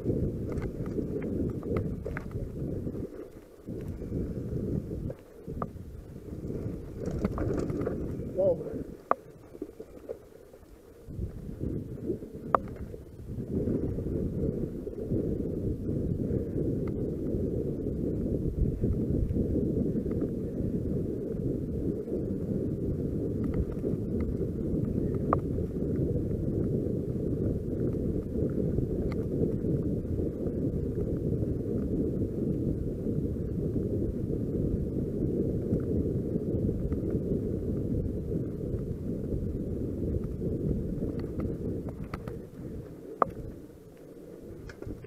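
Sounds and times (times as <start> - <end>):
bike tyres rumbling on dirt: 0.0 - 45.0
wind noise on microphone: 0.0 - 45.0
faint clicks: 12.4 - 13.0, 41.1 - 45.0.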